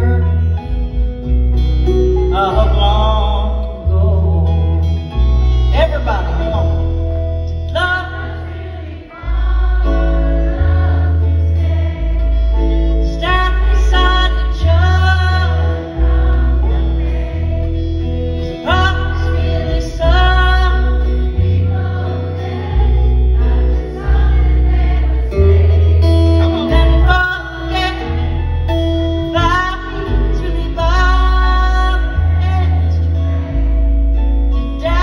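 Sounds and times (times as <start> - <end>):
live country band playing: 0.0 - 35.0
upright bass notes: 0.0 - 35.0
woman singing: 13.0 - 16.0, 18.6 - 21.6, 26.5 - 28.2, 29.3 - 33.2.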